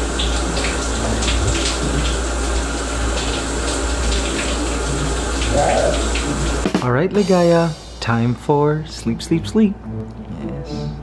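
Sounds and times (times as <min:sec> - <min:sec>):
shower water spraying: 0:00.0 - 0:08.1.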